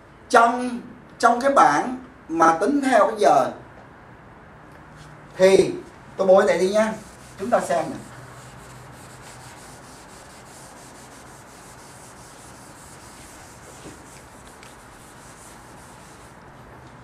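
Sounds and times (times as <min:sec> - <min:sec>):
eraser scrubbing a blackboard: 0:06.5 - 0:16.8.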